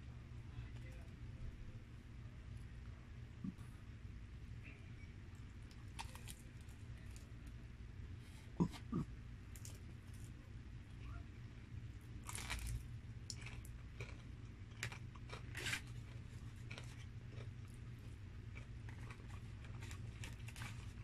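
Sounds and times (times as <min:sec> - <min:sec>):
steady low hum: 0:00.0 - 0:21.0
chewing crispy chicken: 0:05.6 - 0:07.6, 0:08.6 - 0:21.0.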